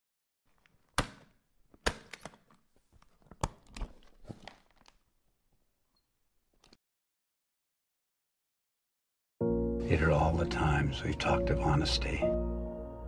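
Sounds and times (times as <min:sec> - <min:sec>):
cloth and paper rustling: 0:02.6 - 0:05.2.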